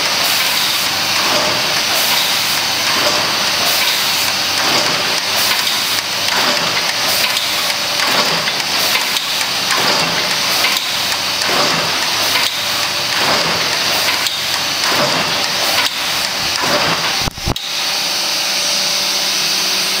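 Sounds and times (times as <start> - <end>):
machine clattering: 0.0 - 17.5.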